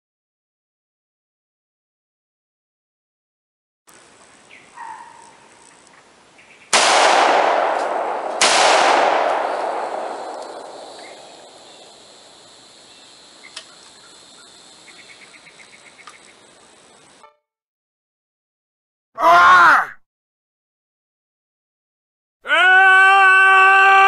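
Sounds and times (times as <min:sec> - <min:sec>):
echoing gunshots: 0:06.7 - 0:12.4.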